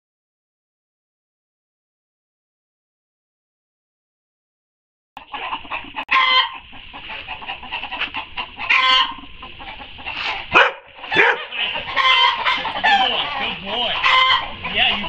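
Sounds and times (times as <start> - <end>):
chicken squawks: 5.2 - 15.0
chickens clucking: 5.2 - 15.0.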